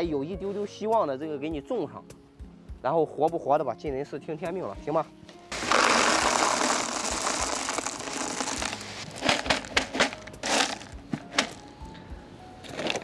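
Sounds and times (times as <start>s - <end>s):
clay pebbles pouring into pot: 5.5s - 11.6s
plastic bag crinkling: 5.5s - 11.6s.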